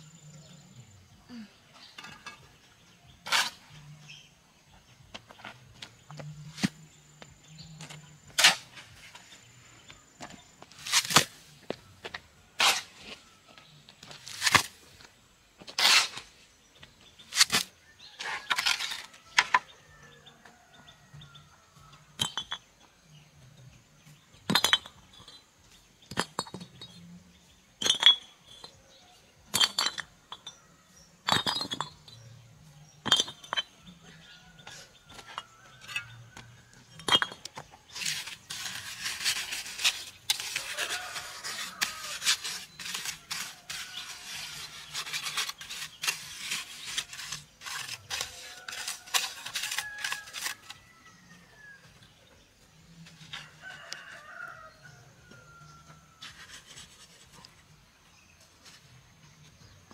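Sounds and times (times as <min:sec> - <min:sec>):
rasping rubbing noise: 0:37.9 - 0:50.8, 0:56.2 - 0:57.7.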